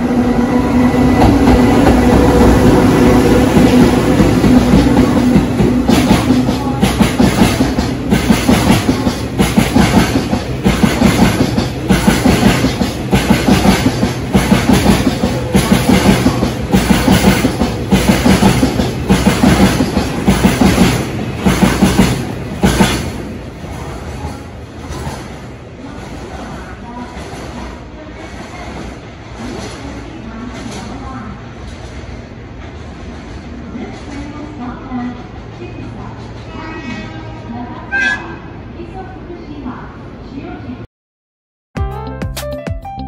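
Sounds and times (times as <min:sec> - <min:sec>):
train wheels clacking over rail joints: 0:03.6 - 0:23.2.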